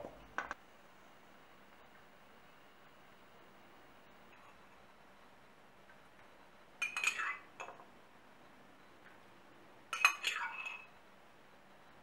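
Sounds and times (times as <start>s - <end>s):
spoon clinking against glass jar: 6.8s - 7.8s.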